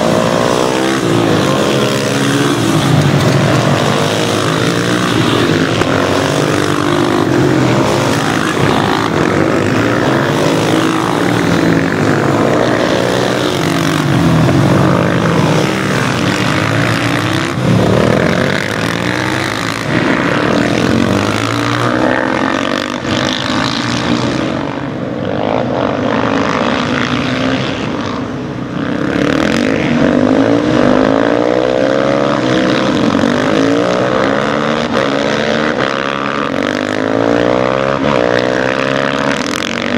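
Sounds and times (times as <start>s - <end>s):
motorcycle engines revving: 0.0s - 39.9s.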